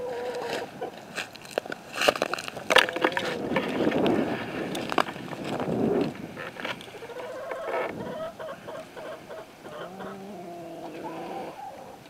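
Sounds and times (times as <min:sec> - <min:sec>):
chickens clucking quietly: 0:00.0 - 0:01.3, 0:02.7 - 0:04.7, 0:06.4 - 0:12.0
rustling on dry leaves and ice: 0:00.0 - 0:07.9.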